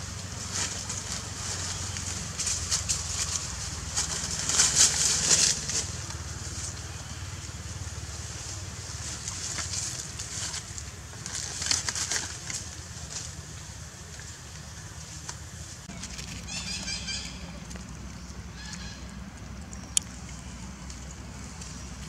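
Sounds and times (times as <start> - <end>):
monkeys scuffling in dry leaves: 0.0 - 19.2.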